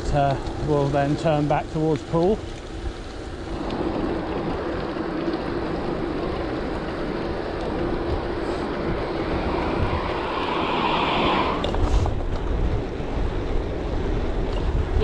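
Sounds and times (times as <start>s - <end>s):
bicycle tyres on tarmac: 0.0s - 15.0s
wind on camera microphone: 7.3s - 15.0s.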